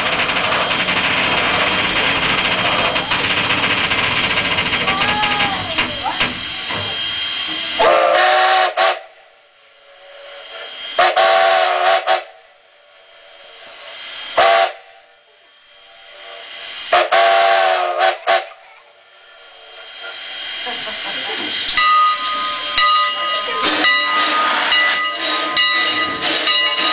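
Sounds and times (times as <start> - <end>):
hiss of steam: 5.1 - 26.9
steam whistle blasts: 7.0 - 9.4, 10.8 - 12.5, 14.3 - 15.1, 16.8 - 18.5.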